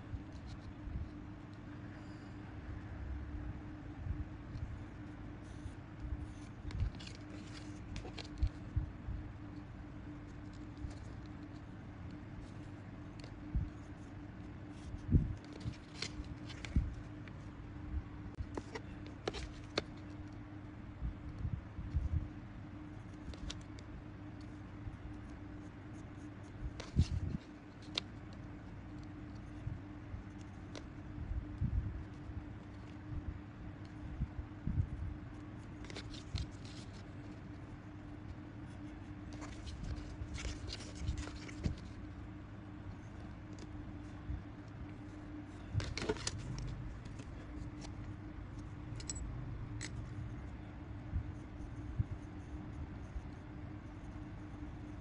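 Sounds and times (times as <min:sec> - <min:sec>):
faint steady hum: 0:00.0 - 0:55.0
paper rustling and ruler clicks: 0:06.2 - 0:08.7, 0:14.7 - 0:17.4, 0:18.4 - 0:20.4, 0:35.3 - 0:37.6, 0:38.7 - 0:42.0, 0:45.7 - 0:48.1.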